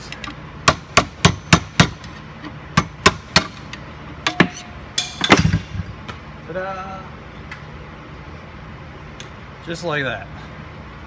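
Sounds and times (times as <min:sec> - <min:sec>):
hammer striking steel rod: 0:00.7 - 0:02.1, 0:04.2 - 0:05.6.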